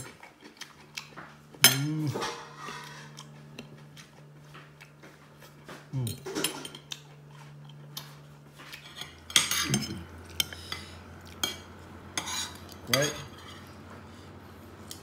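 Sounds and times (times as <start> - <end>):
cutlery clinking on a ceramic plate: 8.9 - 10.6.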